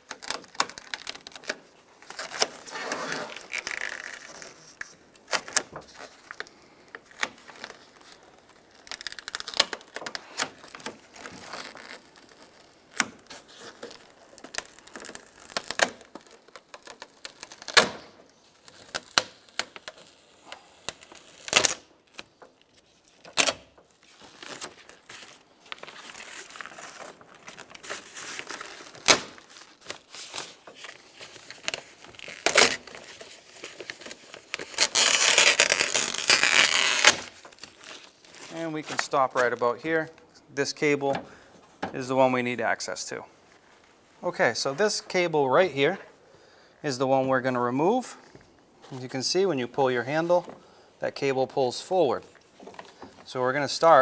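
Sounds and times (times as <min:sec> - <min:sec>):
plastic sheet crinkling and tearing: 0:00.0 - 0:40.2.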